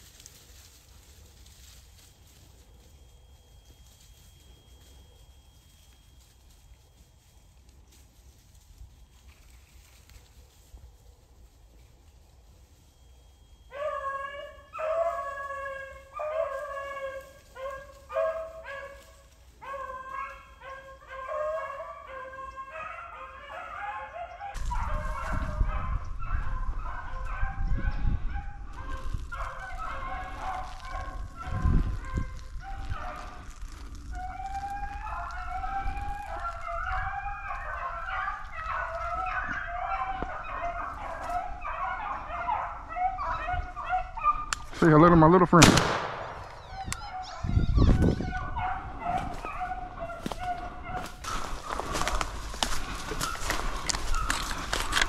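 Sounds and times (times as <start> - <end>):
hounds baying: 12.7 - 45.6, 46.4 - 55.0.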